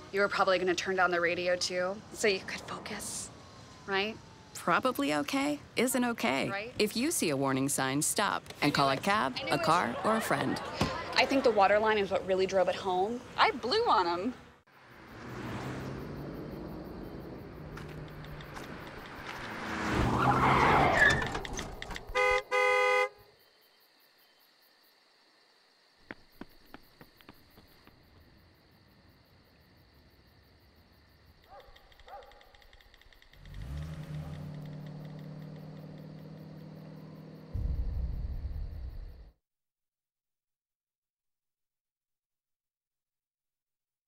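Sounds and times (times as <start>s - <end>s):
car approaching: 0.5s - 6.8s, 13.2s - 22.8s, 32.8s - 38.4s
faint clicks: 17.8s - 19.5s, 31.4s - 36.2s
car horn: 22.1s - 23.3s
deep rumble: 37.4s - 39.3s.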